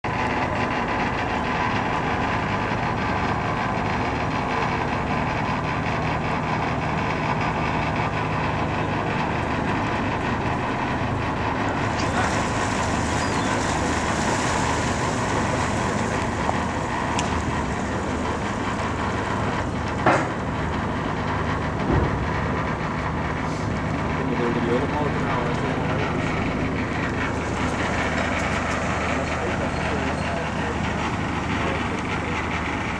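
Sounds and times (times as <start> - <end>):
diesel engine droning: 0.0 - 32.9.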